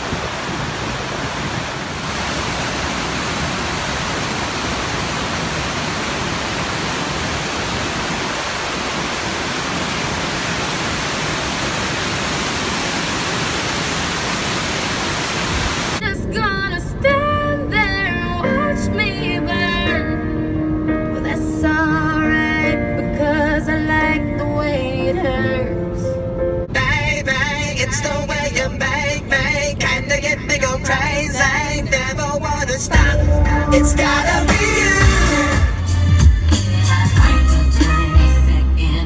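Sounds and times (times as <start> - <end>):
water pouring over dam: 0.0 - 16.0
music with singing: 16.0 - 39.0.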